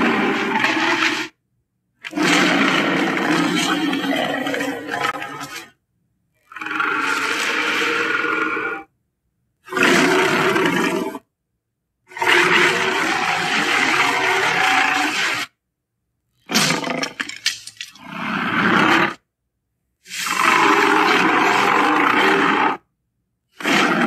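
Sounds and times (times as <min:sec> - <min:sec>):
cartoon alligator roaring: 0:00.0 - 0:01.4, 0:02.0 - 0:05.8, 0:06.4 - 0:08.9, 0:09.6 - 0:11.3, 0:12.1 - 0:15.6, 0:16.4 - 0:19.3, 0:20.0 - 0:22.9, 0:23.5 - 0:24.0.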